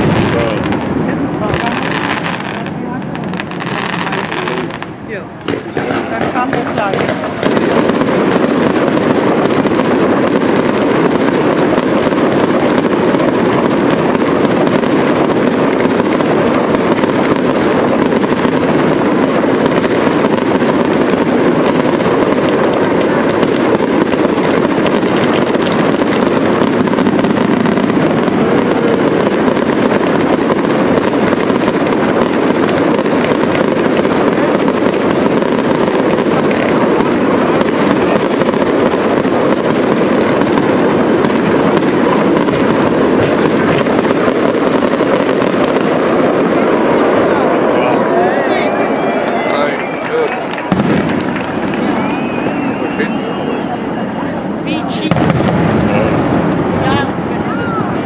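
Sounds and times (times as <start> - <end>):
fireworks crackling and banging: 0.0 - 58.0.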